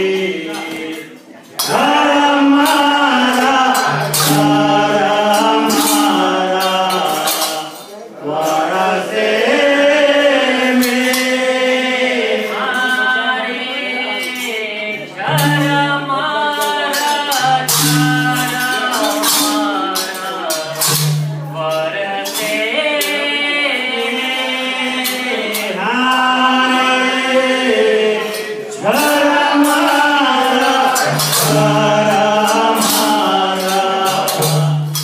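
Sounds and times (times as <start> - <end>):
jingling hand percussion: 0.0 - 35.0
man singing: 0.0 - 35.0
tabla beat: 1.6 - 7.8, 15.2 - 22.3, 28.8 - 35.0.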